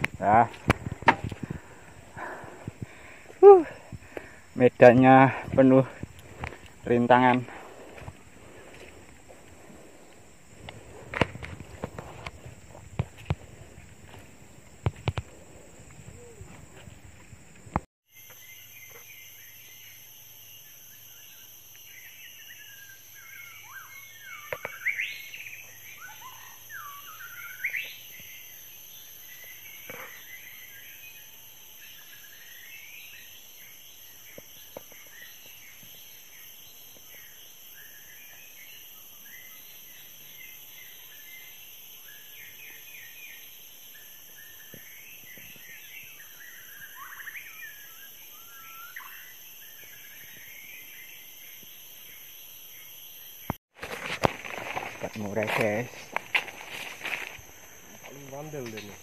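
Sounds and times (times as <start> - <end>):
insects droning: 0.0 - 59.0
birds singing and calling: 18.1 - 53.6, 54.4 - 59.0.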